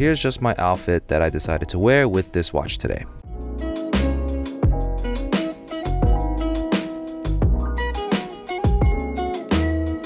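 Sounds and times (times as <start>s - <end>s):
bass line: 3.2s - 8.1s, 8.7s - 10.0s
guitar: 3.4s - 10.0s
steady beat: 3.6s - 10.0s.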